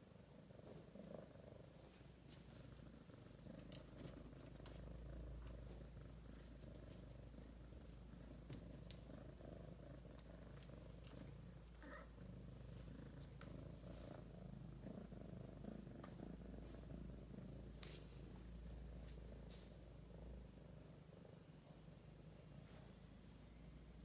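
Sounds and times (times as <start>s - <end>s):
cat purring: 0.0s - 24.0s
faint clicks: 8.5s - 9.1s.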